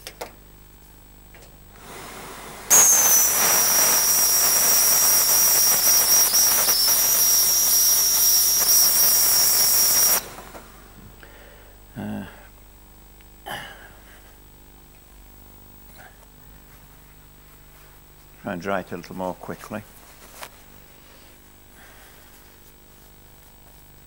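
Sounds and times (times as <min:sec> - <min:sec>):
steam hissing and whistling: 0:01.8 - 0:11.0.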